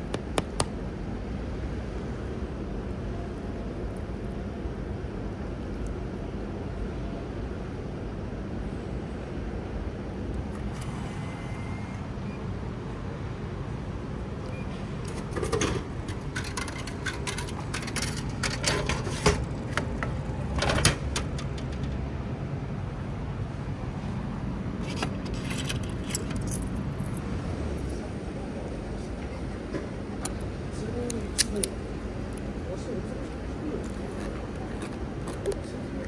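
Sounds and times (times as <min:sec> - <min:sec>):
traffic rumble: 0:00.0 - 0:36.0
vending machine clicks and clatter: 0:15.0 - 0:22.1.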